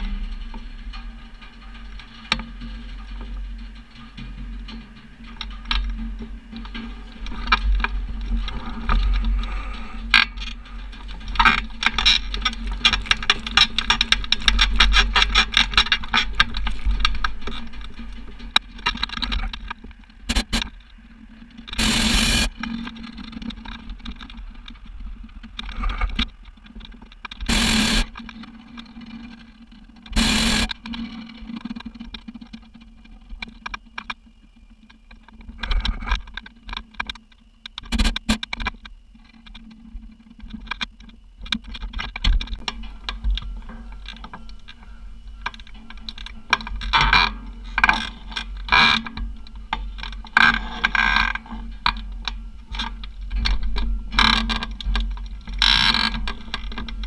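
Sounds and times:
crackling and ticking: 0.0 - 57.0
propane burner blasts: 21.8 - 22.6, 27.5 - 28.1.

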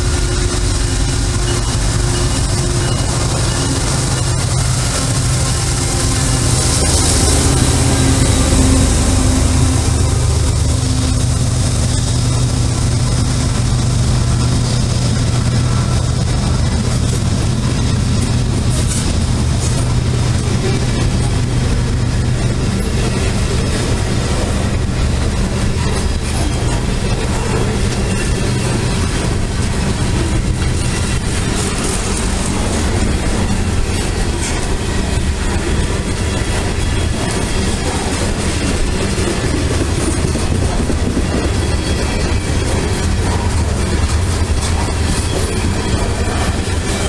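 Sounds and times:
train wheels clacking: 0.0 - 47.0
train wheels rumbling on rails: 0.0 - 47.0.

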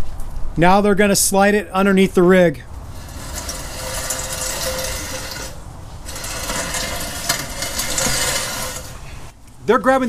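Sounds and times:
axle housing scraping along ground: 2.7 - 9.4.

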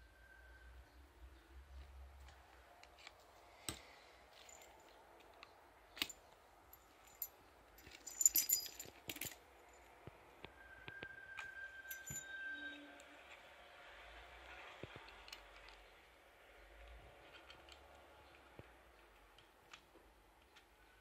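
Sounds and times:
keys jingling: 6.0 - 9.4, 11.9 - 12.3.

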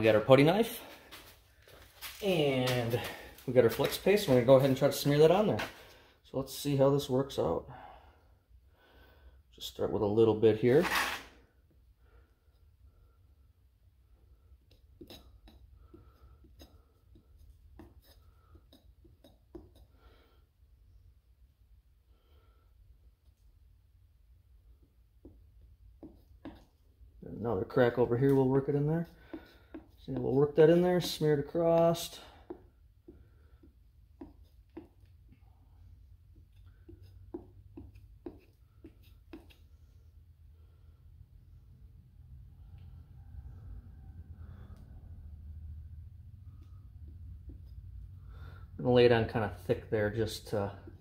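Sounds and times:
putty knife scraping rubber: 10.8 - 11.4, 14.6 - 20.0, 28.0 - 35.4, 36.3 - 39.8.

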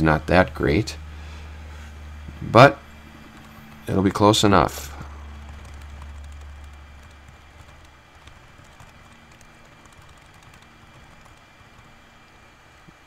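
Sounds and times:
low hum: 0.0 - 13.0
typing on computer keyboard: 5.4 - 12.0.

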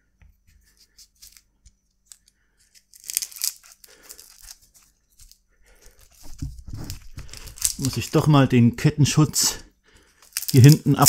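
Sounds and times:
small parts clicking and tapping: 1.1 - 8.2, 10.0 - 11.0
rustling scrape: 2.6 - 8.2.

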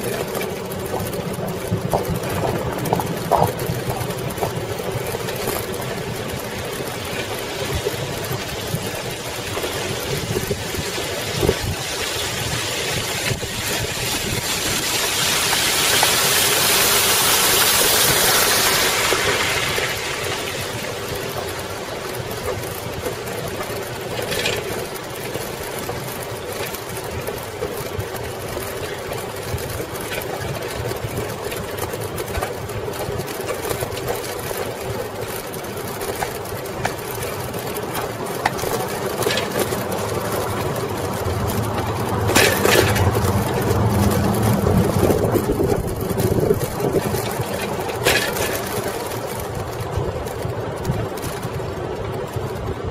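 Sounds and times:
wind noise: 0.0 - 24.6, 28.8 - 52.9
fountain splashing: 0.0 - 52.0
bike tyres rolling over brick: 0.0 - 52.9
rattles and clicks: 0.0 - 52.9.

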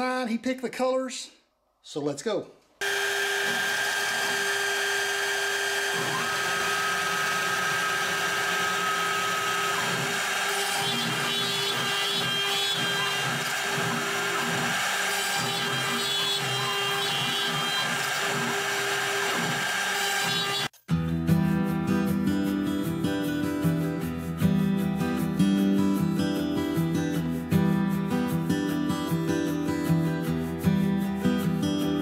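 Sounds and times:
router bit cutting plywood: 2.8 - 20.7
router spindle whining: 2.8 - 20.7.

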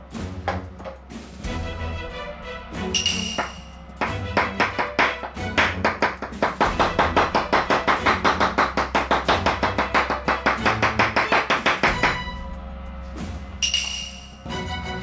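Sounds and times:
knife chopping on wooden board: 3.4 - 12.2.

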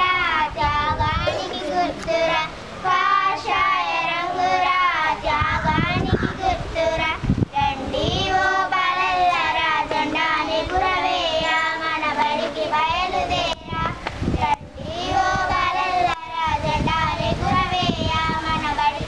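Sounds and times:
girls singing together: 0.0 - 19.0.

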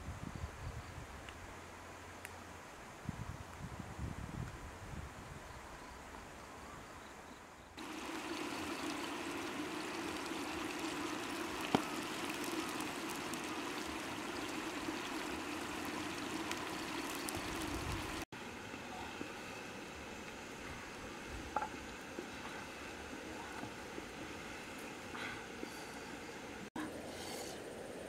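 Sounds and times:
sauce bubbling and hissing: 7.8 - 26.7.

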